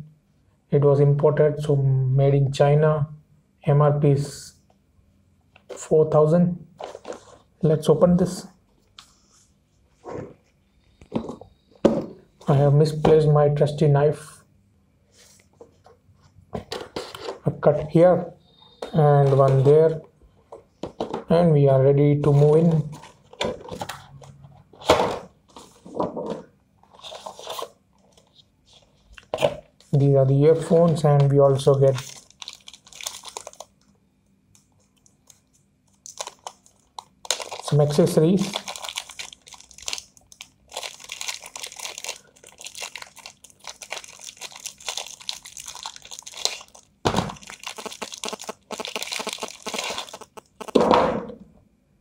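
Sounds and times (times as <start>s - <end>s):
packaging being handled: 26.8s - 33.8s, 34.6s - 50.8s
plastic bag crinkling: 30.6s - 33.8s, 34.9s - 50.8s.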